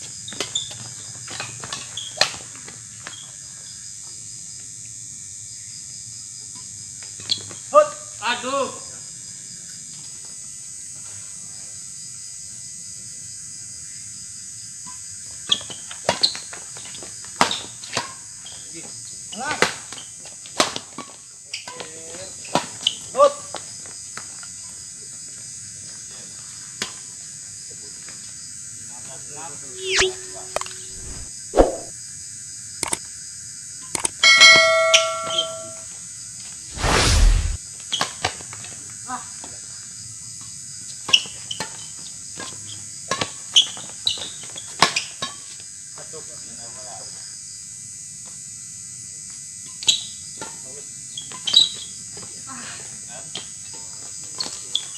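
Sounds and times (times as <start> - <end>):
crickets chirring: 0.0 - 38.0, 38.7 - 54.9
falling swoosh and tone: 29.8 - 31.9, 36.8 - 37.6
notification bell ringing: 34.2 - 35.8
rackets hitting shuttlecock: 34.4 - 35.8.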